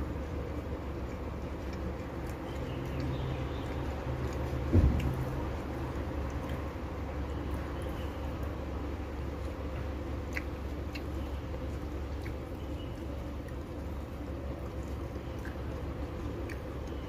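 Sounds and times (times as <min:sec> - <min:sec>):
person chewing food: 0:00.0 - 0:17.0
steady low hum: 0:00.0 - 0:17.0
wet mouth clicks: 0:01.0 - 0:06.7, 0:10.2 - 0:12.7, 0:14.7 - 0:17.0.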